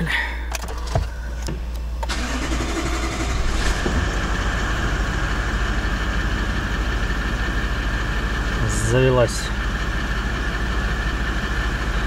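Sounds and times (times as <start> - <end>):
starter motor cranking: 2.1 - 4.1
diesel engine idling: 2.1 - 12.0.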